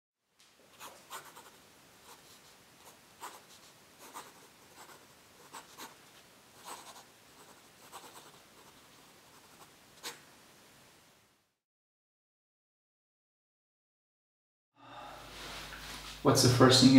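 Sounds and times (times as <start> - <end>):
pen scratching on paper: 0.8 - 6.0, 6.6 - 10.2.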